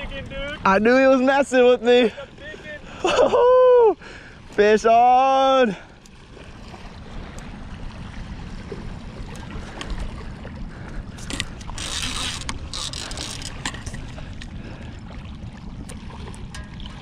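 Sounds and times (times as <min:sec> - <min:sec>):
wind rumble on microphone: 0:00.0 - 0:04.6, 0:06.1 - 0:17.0.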